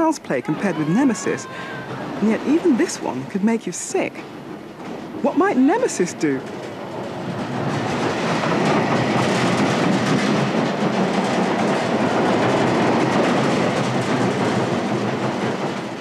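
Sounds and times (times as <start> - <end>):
roller coaster rumbling on track: 0.0 - 16.0.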